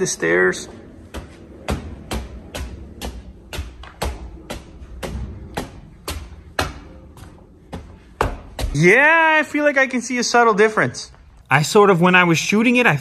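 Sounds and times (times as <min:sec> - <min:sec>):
footsteps walking up stairs: 0:00.0 - 0:09.8.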